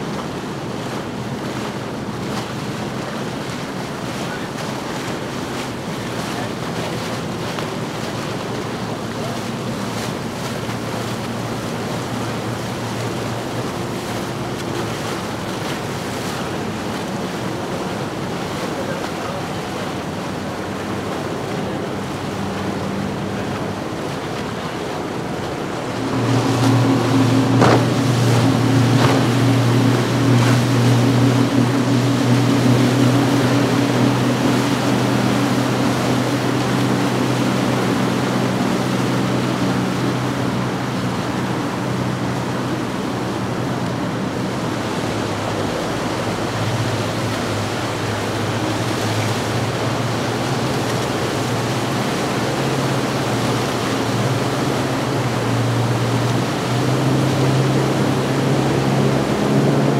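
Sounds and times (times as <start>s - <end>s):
boat wake wash: 0.0s - 59.9s
outboard motorboats running by: 0.0s - 59.9s
wind on microphone: 20.1s - 59.9s.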